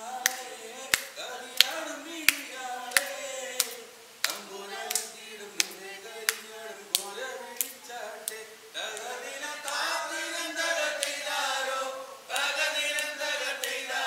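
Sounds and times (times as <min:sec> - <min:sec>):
man singing into a microphone: 0:00.0 - 0:11.2
hand claps: 0:00.2 - 0:09.9, 0:11.0 - 0:11.3, 0:12.3 - 0:14.0.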